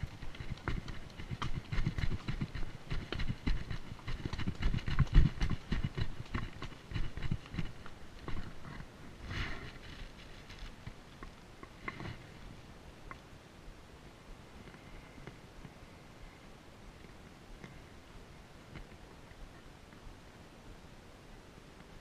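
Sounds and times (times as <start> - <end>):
hooves clopping on rock: 0.0 - 13.3, 18.6 - 20.1.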